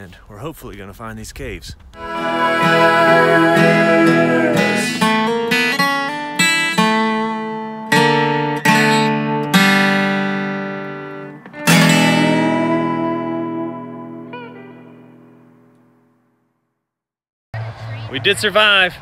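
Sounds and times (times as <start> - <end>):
acoustic guitar music: 2.0 - 16.6.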